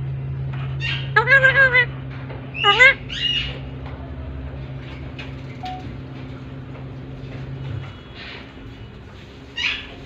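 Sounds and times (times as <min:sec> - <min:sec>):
parakeet squawking: 0:00.8 - 0:01.9, 0:02.5 - 0:03.6, 0:09.6 - 0:10.0.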